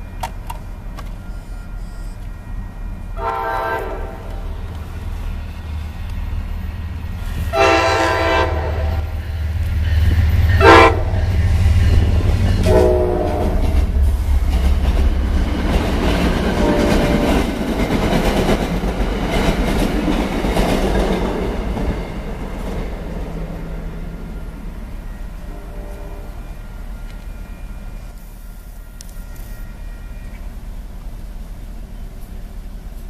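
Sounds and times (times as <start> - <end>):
train rumbling past: 0.0 - 33.0
locomotive horn blasts: 1.1 - 4.7, 7.4 - 9.3, 10.5 - 11.4, 12.6 - 14.0, 16.5 - 17.5, 25.0 - 30.6.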